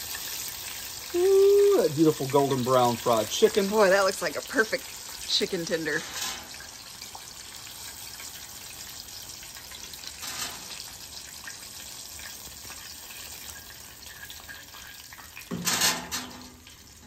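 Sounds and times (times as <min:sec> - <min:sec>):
oil sizzling in a skillet: 0:00.0 - 0:17.0.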